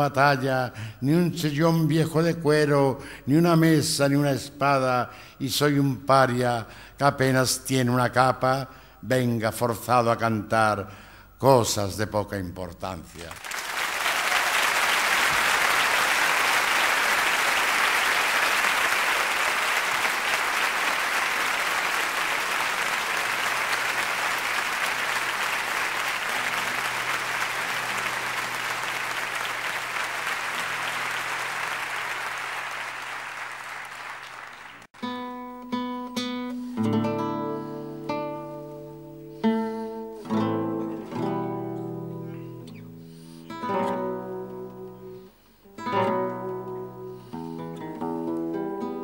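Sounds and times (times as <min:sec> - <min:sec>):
concert audience applauding: 0:13.1 - 0:35.0
acoustic guitar plucking: 0:35.0 - 0:49.0.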